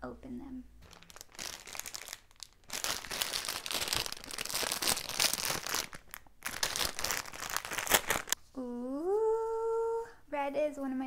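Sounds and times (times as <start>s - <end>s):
plastic bag crinkling: 0.8s - 8.4s.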